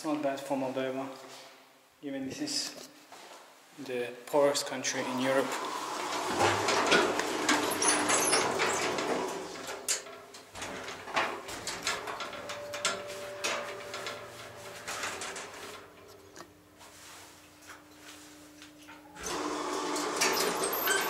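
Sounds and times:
faint steady elevator hum: 5.0 - 21.0
rustling and knocks: 6.0 - 19.1.

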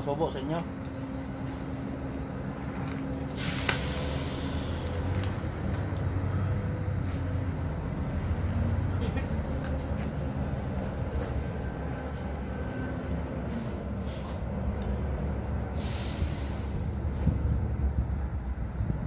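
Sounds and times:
heavy road traffic rumble: 0.0 - 19.0
short hiss: 3.4 - 4.8, 15.8 - 16.8.

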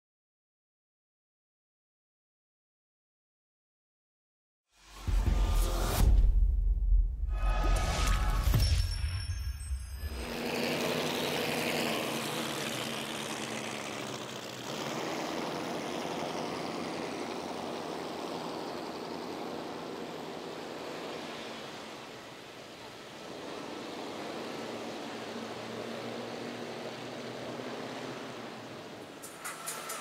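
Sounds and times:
motorboat engines running: 10.1 - 27.3.

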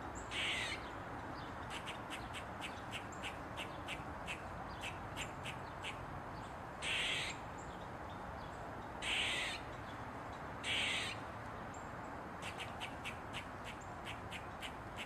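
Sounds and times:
squirrel barking: 0.3 - 0.8, 6.8 - 7.4, 9.0 - 9.6, 10.6 - 11.2, 12.4 - 15.0.

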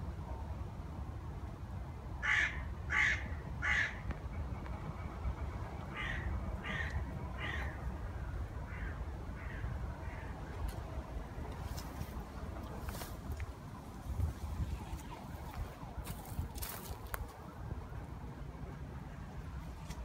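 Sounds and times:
crow cawing: 2.2 - 4.0, 5.9 - 7.9, 8.7 - 10.4.

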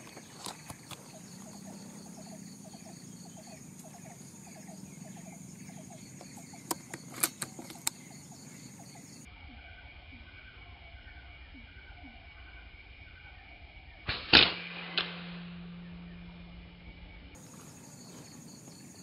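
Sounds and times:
short chirping calls: 0.0 - 9.3
high insect drone: 0.0 - 14.1, 15.0 - 19.0
sharp clicks: 6.2 - 8.2.

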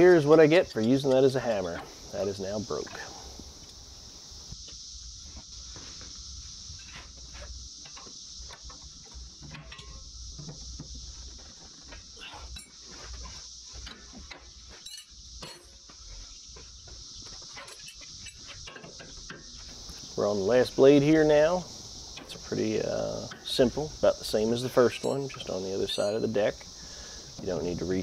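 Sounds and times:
cicadas droning: 0.0 - 28.0
metal hand tools clinking: 24.9 - 26.3.

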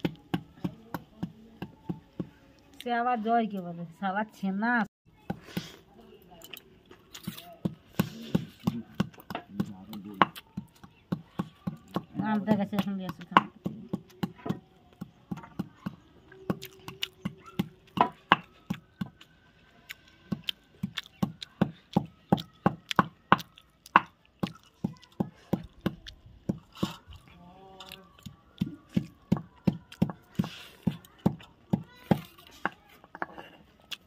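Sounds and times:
stone muller knocking and scraping: 32.1 - 33.7.

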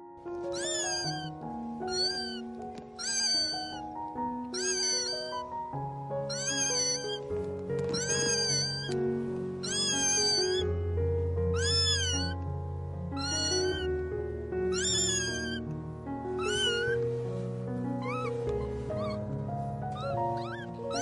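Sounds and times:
background music with low notes: 0.0 - 21.0
kittens mewing: 0.4 - 5.6, 6.2 - 9.0, 9.6 - 10.7, 11.5 - 12.4, 13.2 - 13.9, 14.7 - 15.6, 16.4 - 17.1, 18.0 - 19.3, 19.9 - 21.0.

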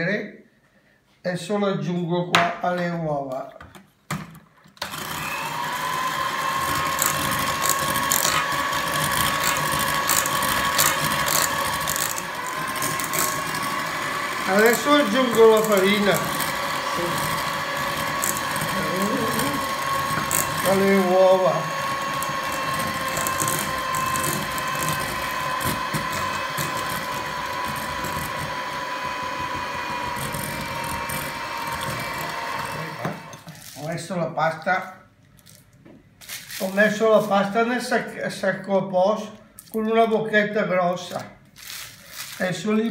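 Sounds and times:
electric hand mixer whine: 4.8 - 33.5.

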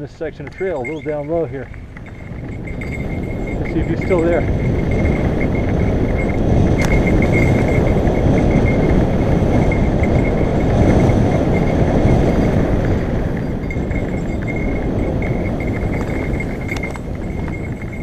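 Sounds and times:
bike bell jingling: 0.0 - 18.0
wind buffeting camera: 0.0 - 18.0.

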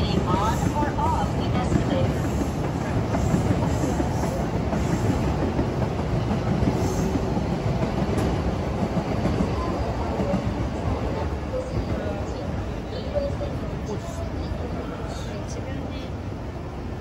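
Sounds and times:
train rumbling on tracks: 0.0 - 17.0.

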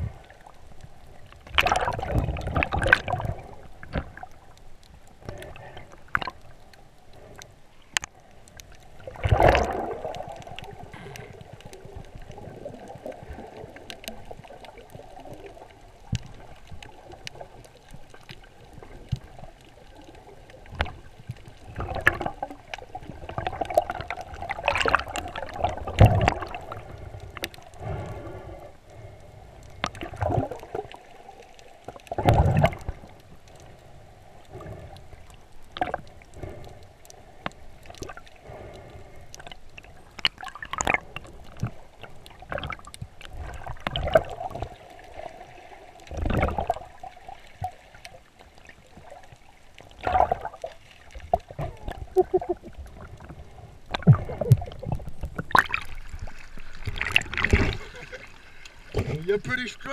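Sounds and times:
muffled underwater rush: 0.0 - 59.9
swishing water surges: 0.0 - 59.9
small ticks and knocks: 0.7 - 8.9, 13.7 - 30.7, 34.4 - 44.8.

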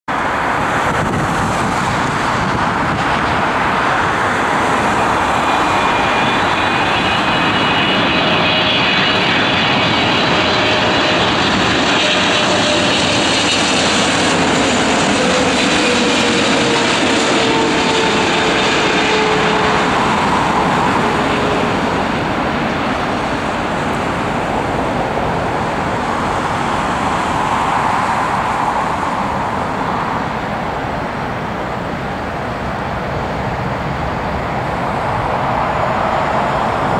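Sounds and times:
jet airliner passing overhead: 0.1 - 36.9.

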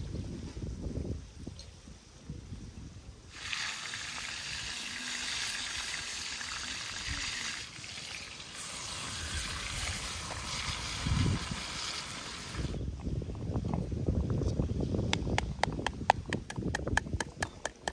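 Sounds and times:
fish sizzling in hot oil: 3.3 - 12.8.

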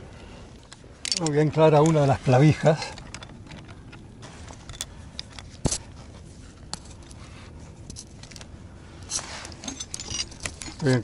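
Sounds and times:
metal climbing gear clicking: 0.6 - 4.0, 7.9 - 11.0.

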